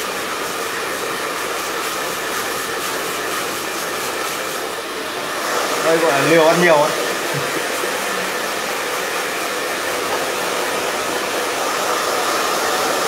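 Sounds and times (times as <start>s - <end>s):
hair dryer blowing: 0.0s - 13.0s.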